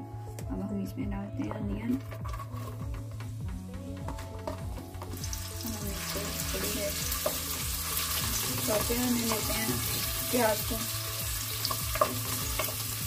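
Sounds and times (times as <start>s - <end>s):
wooden spoon stirring: 1.5s - 5.6s
onions sizzling in oil: 4.4s - 13.0s.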